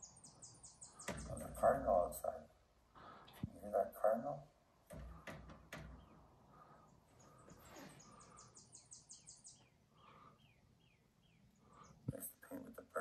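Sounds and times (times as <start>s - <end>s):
faint high chirping: 6.0s - 12.2s.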